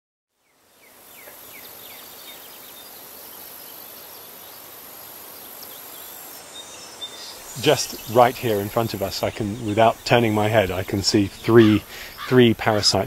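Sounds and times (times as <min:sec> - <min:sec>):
high insect trill: 0:00.5 - 0:13.0
bird chirps: 0:05.4 - 0:13.0.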